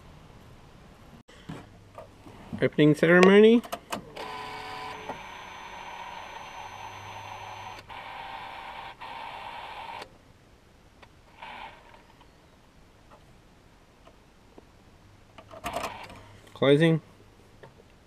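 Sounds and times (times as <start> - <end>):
car electrical hum: 3.9 - 10.2.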